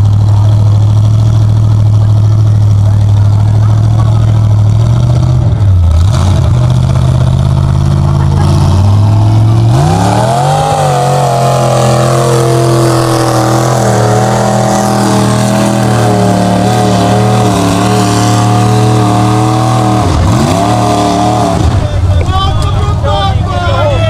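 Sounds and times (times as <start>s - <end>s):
engine revving hard: 2.9s - 22.0s.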